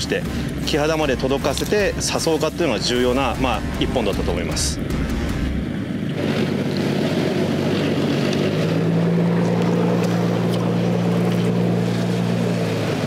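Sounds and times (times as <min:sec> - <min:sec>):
boat engine running: 0:00.0 - 0:13.0
sea water: 0:00.0 - 0:13.0
wind: 0:00.0 - 0:13.0.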